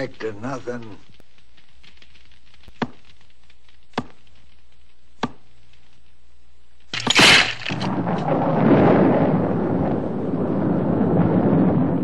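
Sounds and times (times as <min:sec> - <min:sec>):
loud burst: 0:07.0 - 0:09.8.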